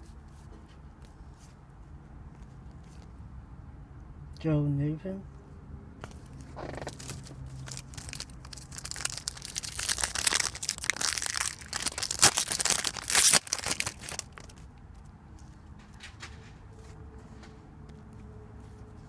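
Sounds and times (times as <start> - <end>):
foil wrapper crinkling and tearing: 6.6 - 14.7.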